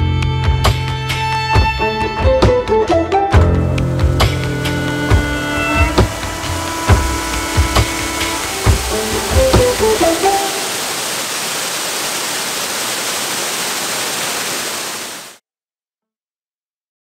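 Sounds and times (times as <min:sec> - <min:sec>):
background music: 0:00.0 - 0:10.7
waterfall rushing: 0:04.0 - 0:15.4.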